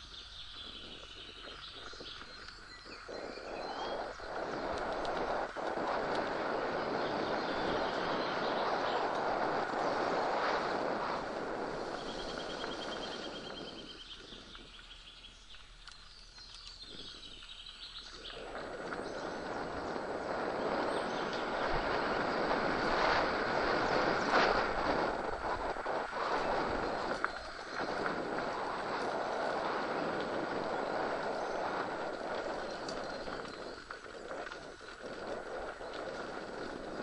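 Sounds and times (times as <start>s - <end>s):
bike tyre and frame rattle: 0.0s - 37.0s
wind rush on microphone: 0.0s - 37.0s.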